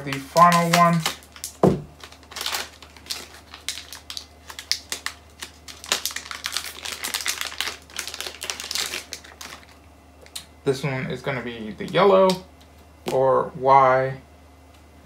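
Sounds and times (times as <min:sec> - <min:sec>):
plastic packaging torn open: 0:00.0 - 0:09.8.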